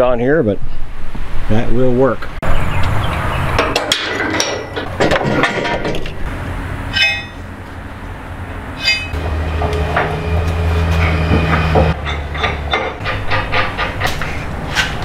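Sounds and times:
steel parts clanking: 3.6 - 7.5, 8.8 - 15.0
ringing metal clinks: 6.9 - 7.4.

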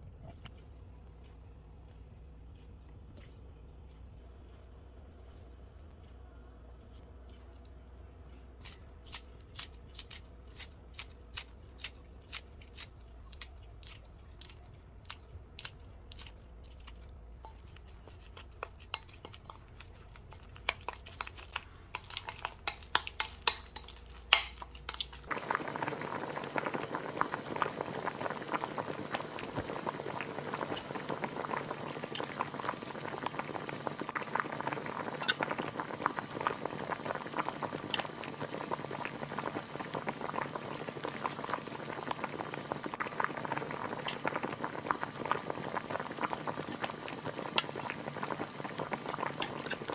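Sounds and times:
pot boiling: 17.4 - 49.9.

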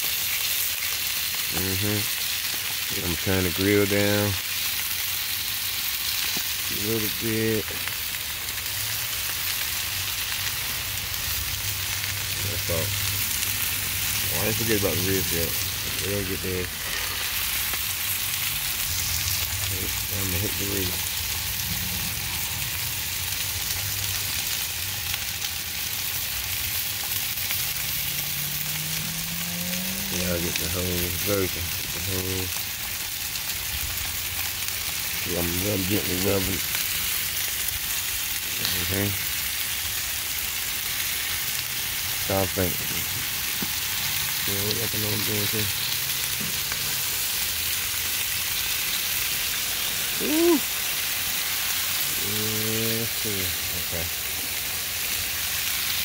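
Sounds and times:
meat sizzling on a grill: 0.0 - 56.0
man humming: 50.1 - 50.7, 52.1 - 52.8.

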